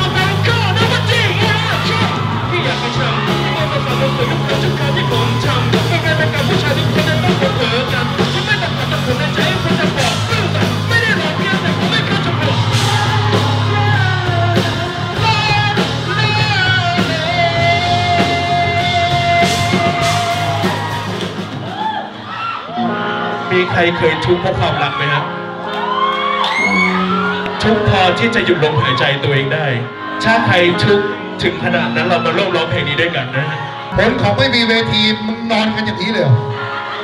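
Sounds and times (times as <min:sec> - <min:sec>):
shouted sung lead vocal: 0:00.0 - 0:22.8
live rock band playing: 0:00.0 - 0:37.0.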